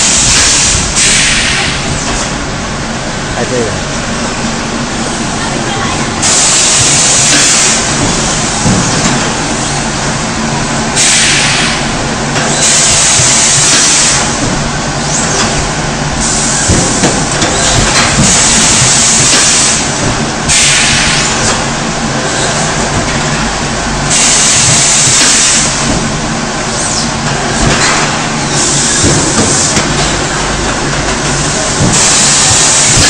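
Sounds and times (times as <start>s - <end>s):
compressed air hissing: 0.0s - 2.0s, 6.2s - 8.6s, 11.0s - 14.4s, 16.2s - 21.6s, 24.0s - 25.9s, 31.4s - 33.0s
steady low hum: 0.0s - 33.0s.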